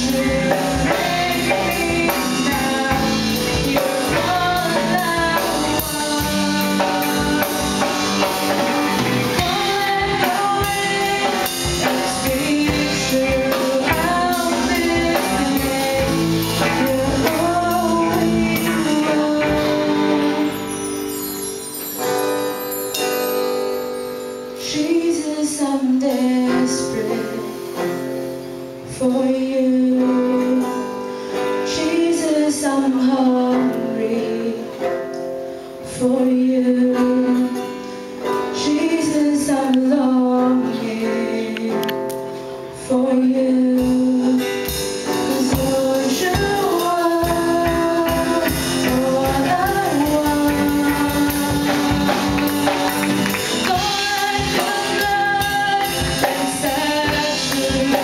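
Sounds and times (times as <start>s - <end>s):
bass guitar: 0.0s - 21.6s, 43.7s - 58.0s
woman singing lead: 0.0s - 22.5s, 24.5s - 58.0s
drums: 0.0s - 58.0s
electric guitars: 0.0s - 58.0s.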